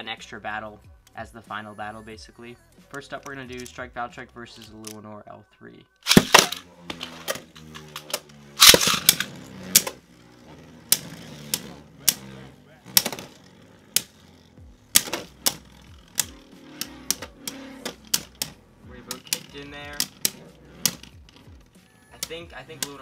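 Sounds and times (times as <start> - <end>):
spinning tops clacking together: 6.0 - 10.0, 10.6 - 23.0
spinning tops whirring: 6.0 - 23.0.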